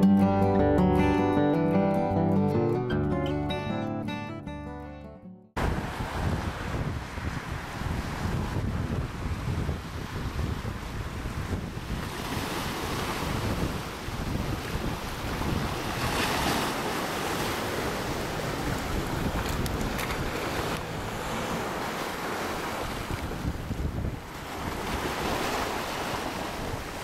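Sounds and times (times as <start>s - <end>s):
waves breaking against boulders: 5.6s - 27.0s
wind rumbling on microphone: 5.6s - 27.0s.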